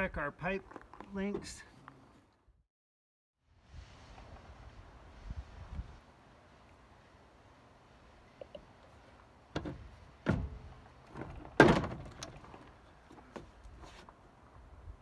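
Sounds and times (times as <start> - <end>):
knocks and thuds of a water pump: 9.6 - 10.6, 11.2 - 12.3.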